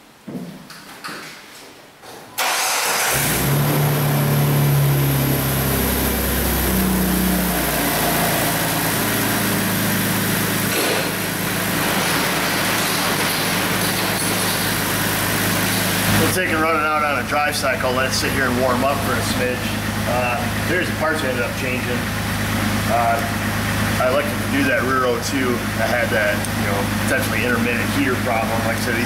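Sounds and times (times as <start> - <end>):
car engine starting and idling: 2.4 - 29.0.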